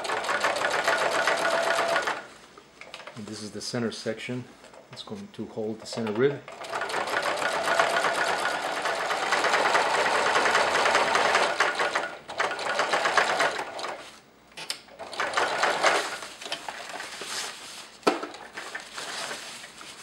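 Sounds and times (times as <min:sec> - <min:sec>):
sewing machine stitching: 0:00.0 - 0:02.2, 0:05.9 - 0:14.0, 0:15.0 - 0:16.2.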